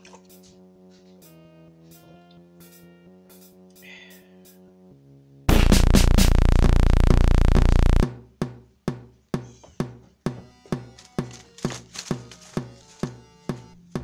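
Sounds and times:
steady drum beat: 5.5 - 8.1
sudden loud music burst: 5.5 - 8.1.

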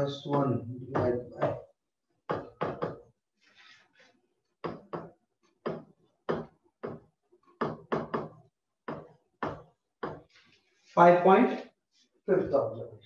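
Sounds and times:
pen knocking on writing surface: 4.6 - 10.3.

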